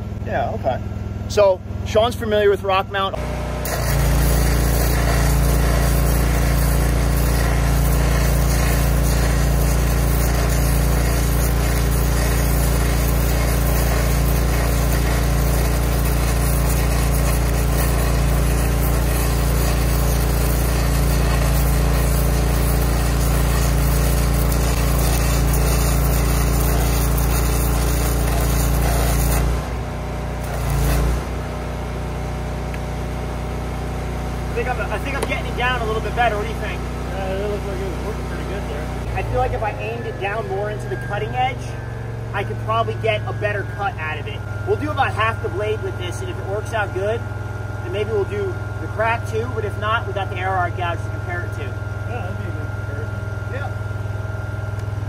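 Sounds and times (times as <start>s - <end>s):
welder engine hum: 1.0s - 55.0s
arc gouging crackling hiss: 3.7s - 29.6s, 30.4s - 31.3s.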